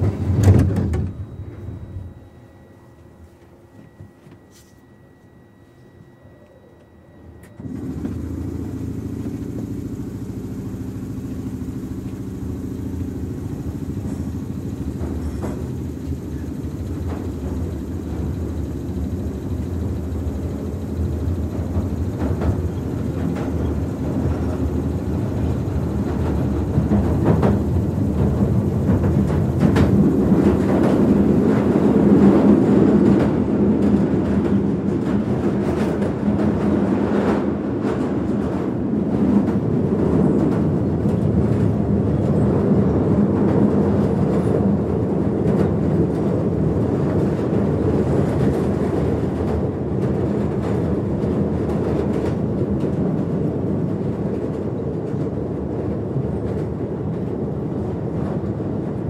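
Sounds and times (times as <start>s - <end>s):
train rumble: 0.0s - 4.4s, 7.4s - 59.0s
motor hum: 0.0s - 33.2s.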